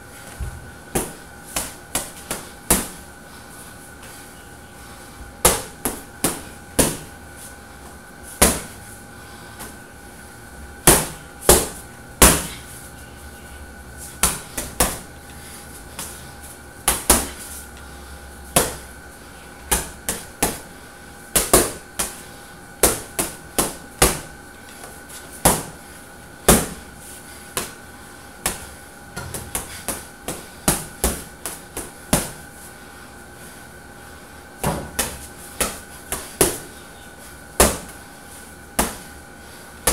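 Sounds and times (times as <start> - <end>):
gloves punching heavy bag: 10.8 - 12.6.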